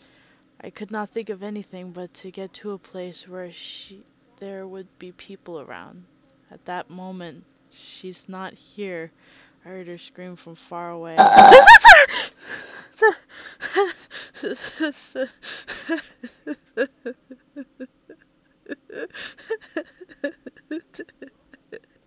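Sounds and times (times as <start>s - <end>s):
loud high scream: 11.2s - 12.2s.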